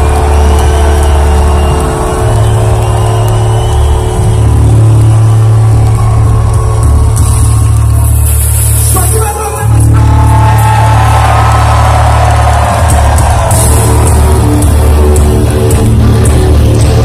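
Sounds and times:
heavy metal band playing live: 0.0s - 17.0s.

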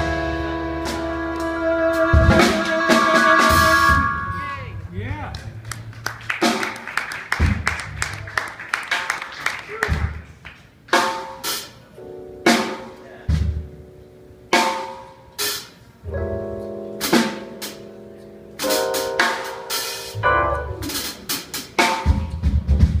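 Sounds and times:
drum kit and cymbal accents: 0.0s - 4.6s, 10.9s - 23.0s
jazz band playing live: 0.0s - 4.9s, 5.5s - 23.0s.

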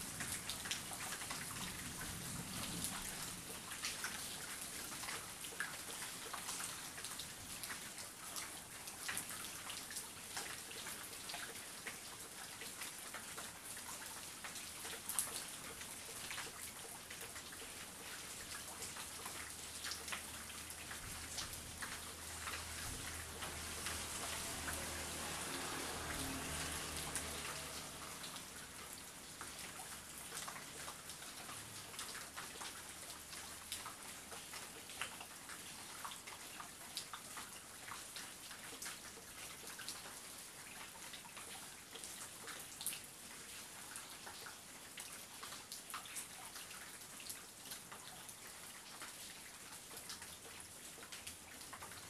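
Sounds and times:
heavy rain on a roof: 0.0s - 52.0s.

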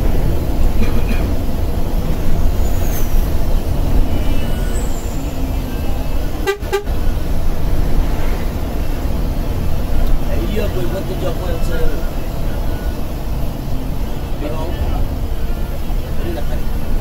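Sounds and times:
bus engine and road rumble: 0.0s - 17.0s
vehicle horn toot: 6.3s - 7.1s.

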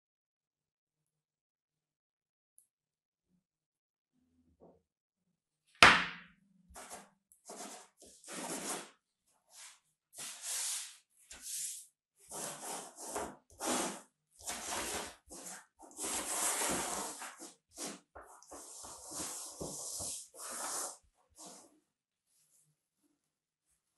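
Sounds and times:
sharp knock: 5.8s - 6.3s.

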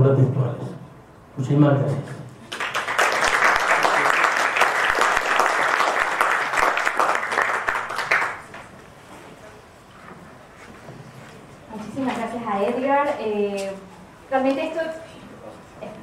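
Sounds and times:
audience applauding: 2.5s - 8.7s.

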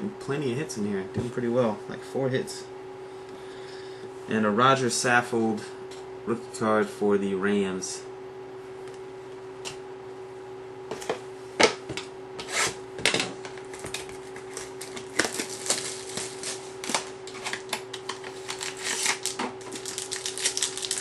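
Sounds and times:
foil wrapper crackling: 14.2s - 21.0s.

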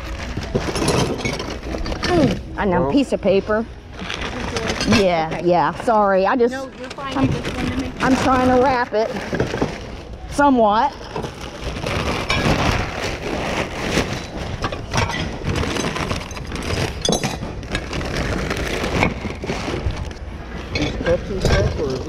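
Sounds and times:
paper crinkling and rustling: 3.9s - 5.4s, 6.6s - 10.2s, 11.0s - 20.3s.

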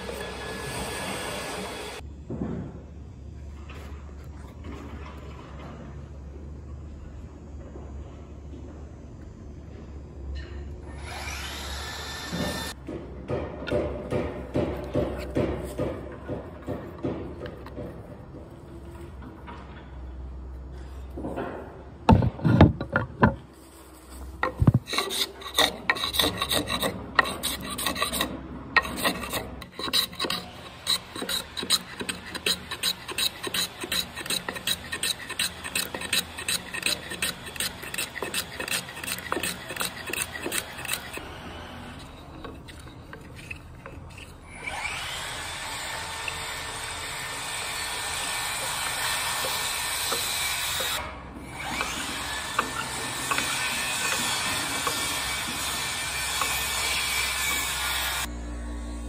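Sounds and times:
hand plane shaving wood: 24.5s - 44.4s, 51.6s - 57.9s.

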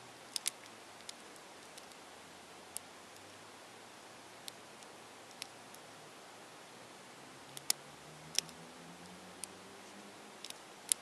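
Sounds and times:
steady hiss: 0.0s - 11.0s
plastic puzzle cube clicking: 0.3s - 2.0s, 4.4s - 5.5s, 7.6s - 8.6s, 10.4s - 11.0s.

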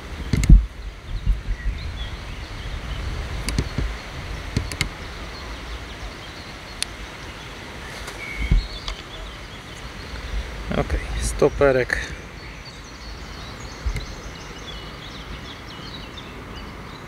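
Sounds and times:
wind rumbling on microphone: 0.0s - 17.0s
sharp clicks: 0.3s - 0.6s, 3.4s - 3.9s, 4.5s - 5.0s, 13.8s - 14.2s.

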